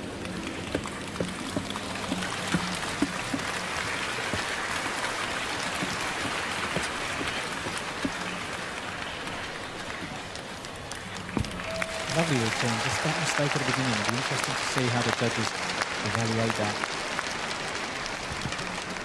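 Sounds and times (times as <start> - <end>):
crowd clapping and chattering: 0.0 - 19.0
sharp knocks: 11.1 - 12.3.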